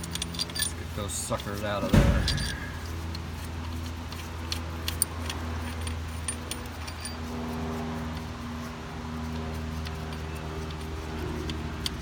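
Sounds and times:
metal bolts and tools clinking: 0:00.0 - 0:07.3, 0:09.8 - 0:12.0
steady low hum: 0:00.0 - 0:12.0.

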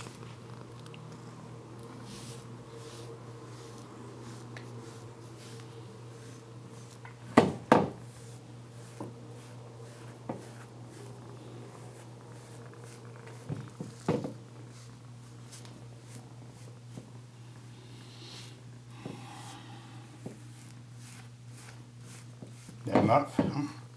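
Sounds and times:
brush strokes through cat fur: 0:00.0 - 0:23.3
steady low hum: 0:00.0 - 0:23.9
sharp knocks: 0:07.3 - 0:08.0.

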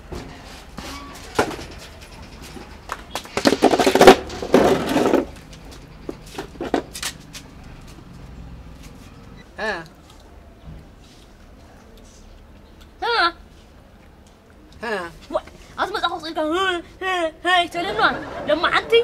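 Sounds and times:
footsteps: 0:00.0 - 0:09.3
plastic stool scraping on concrete: 0:03.1 - 0:05.4, 0:06.2 - 0:07.2.

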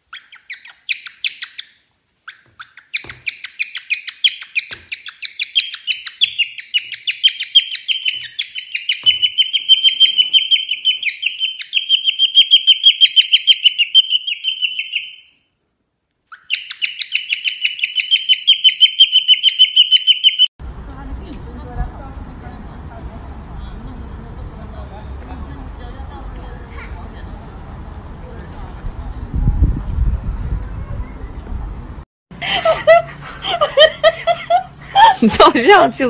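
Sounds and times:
cockatiel chirping: 0:00.0 - 0:15.4, 0:16.3 - 0:20.5.

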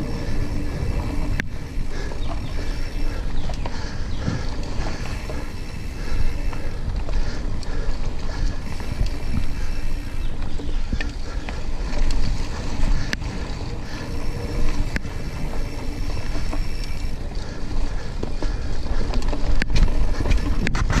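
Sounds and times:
bike tyres rumbling on dirt: 0:00.0 - 0:21.0
wind buffeting microphone: 0:00.0 - 0:21.0.

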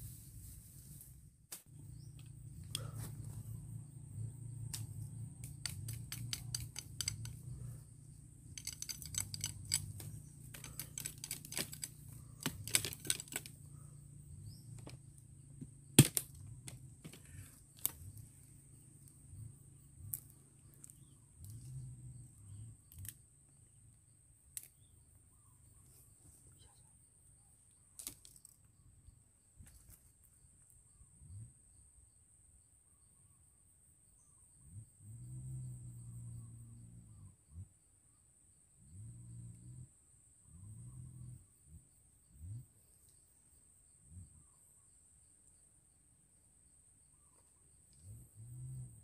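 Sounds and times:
knife cutting wooden stick: 0:04.7 - 0:07.6, 0:08.6 - 0:13.5
wood cracking loudly: 0:08.6 - 0:13.5, 0:16.0 - 0:17.2.

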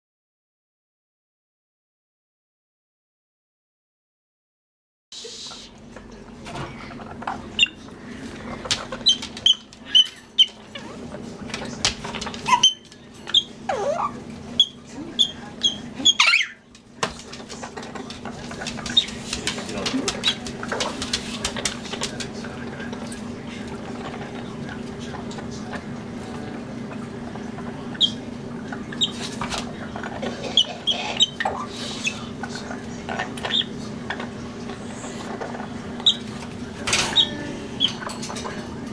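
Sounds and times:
parrot squeaking: 0:07.6 - 0:07.8, 0:08.9 - 0:11.0, 0:12.4 - 0:16.6, 0:28.0 - 0:28.2, 0:28.9 - 0:29.2, 0:30.5 - 0:32.3, 0:33.5 - 0:33.8, 0:36.0 - 0:36.3.

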